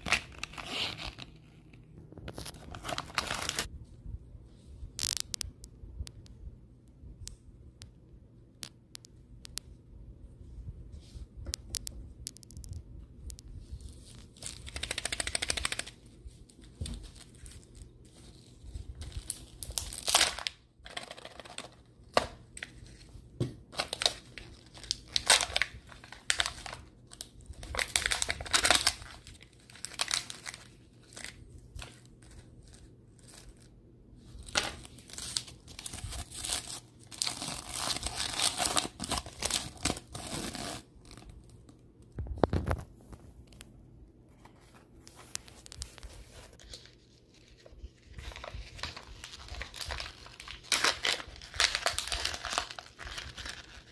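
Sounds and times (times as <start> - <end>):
paper leaflet crinkling: 0.0 - 3.7, 13.8 - 23.1, 23.7 - 33.7, 44.3 - 53.9
wrapper crinkling and tearing: 0.0 - 3.7, 5.0 - 5.4, 14.0 - 23.0, 23.7 - 33.7, 34.4 - 41.4, 45.2 - 53.9.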